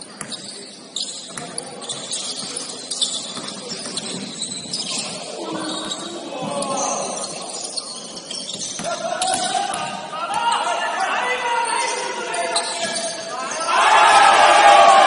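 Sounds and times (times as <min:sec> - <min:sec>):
shoes squeaking on gym court: 0:00.0 - 0:14.2
players calling out: 0:03.2 - 0:15.0.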